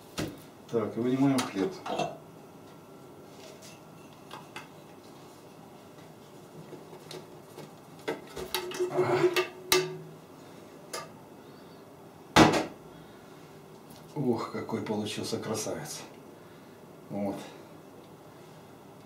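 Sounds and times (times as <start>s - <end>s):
metal pan clattering knocks: 8.6s - 10.0s.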